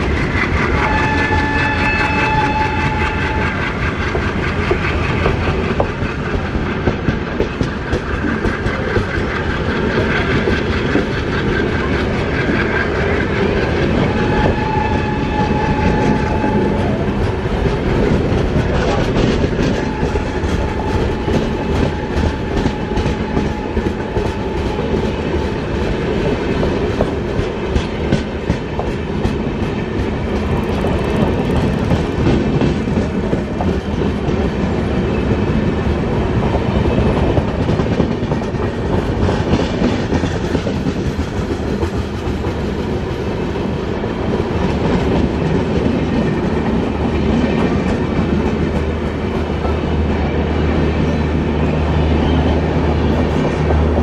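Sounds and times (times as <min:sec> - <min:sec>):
wheels clicking over rail joints: 0:00.0 - 0:34.8
train coaches rumbling past: 0:00.0 - 0:54.0.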